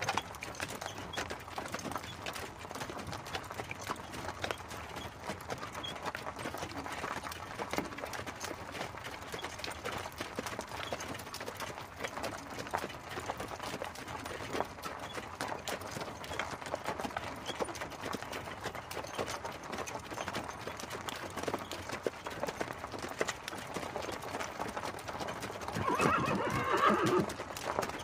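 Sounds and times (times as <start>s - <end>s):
horse hooves clip-clopping: 0.0s - 28.0s.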